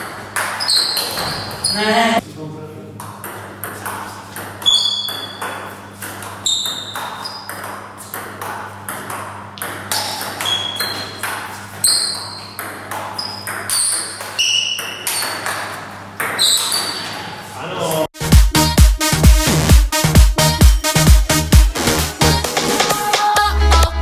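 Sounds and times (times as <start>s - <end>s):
table tennis ball hitting bats and table: 0.0s - 1.7s, 3.0s - 17.3s.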